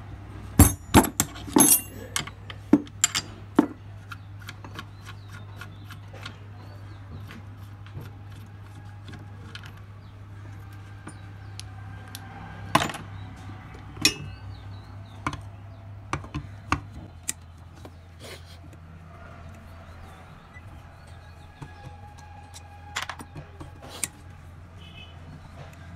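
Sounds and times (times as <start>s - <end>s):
metal tools knocking on metal: 0.6s - 3.9s, 10.4s - 15.4s, 16.1s - 18.0s, 20.5s - 24.2s.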